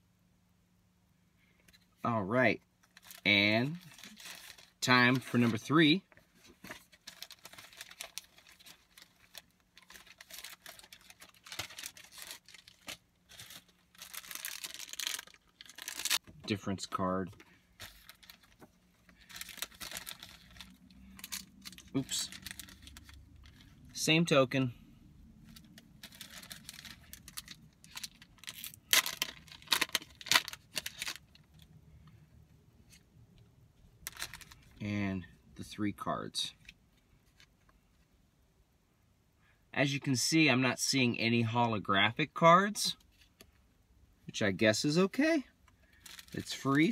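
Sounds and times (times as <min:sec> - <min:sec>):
plastic wrapper tearing and crinkling: 0:02.9 - 0:05.6, 0:06.8 - 0:16.2, 0:17.8 - 0:23.8, 0:25.4 - 0:31.7, 0:34.0 - 0:34.8, 0:46.0 - 0:46.9.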